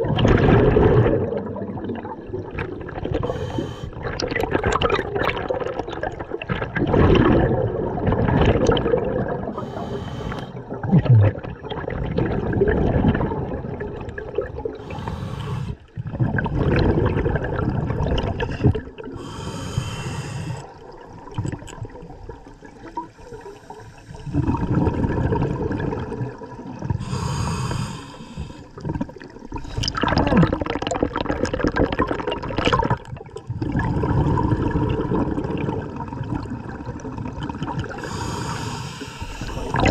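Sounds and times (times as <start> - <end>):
exhaled bubbles gurgling: 0.0 - 39.9
scuba regulator inhale hiss: 3.2 - 4.0, 9.6 - 10.6, 14.8 - 15.8, 19.2 - 20.7, 27.0 - 28.8, 38.0 - 39.8.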